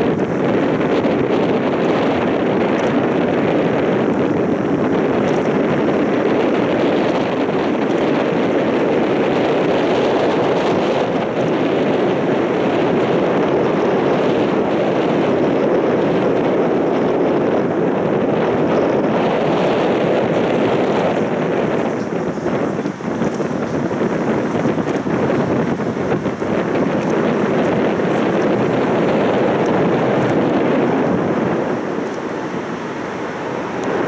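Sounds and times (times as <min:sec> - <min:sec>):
wind rushing: 0:00.0 - 0:34.0.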